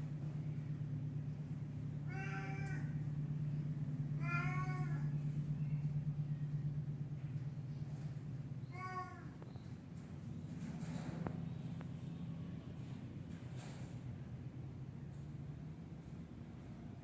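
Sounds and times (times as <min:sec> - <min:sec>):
steady low hum: 0:00.0 - 0:17.0
cat meowing: 0:02.1 - 0:02.9, 0:04.2 - 0:05.1.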